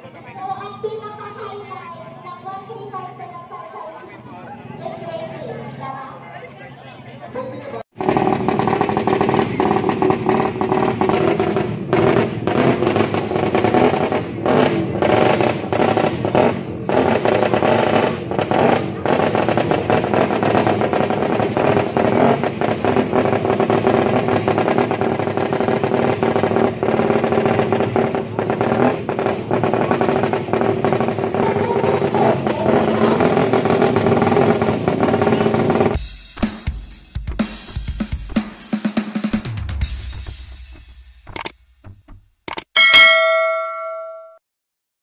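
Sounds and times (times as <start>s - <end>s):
crowd voices: 0.0s - 11.1s, 27.9s - 36.0s
motorcycle engines running: 0.0s - 36.0s, 43.0s - 44.3s.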